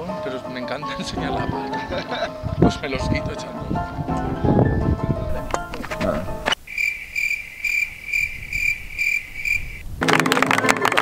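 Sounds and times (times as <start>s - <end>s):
cricket chirping: 6.4s - 9.9s.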